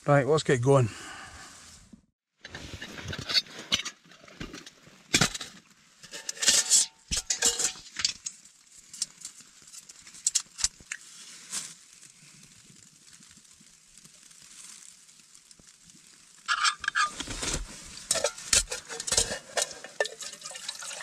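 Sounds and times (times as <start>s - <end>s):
metal stove parts clinking: 5.2s - 8.3s, 16.5s - 17.3s, 18.1s - 21.0s.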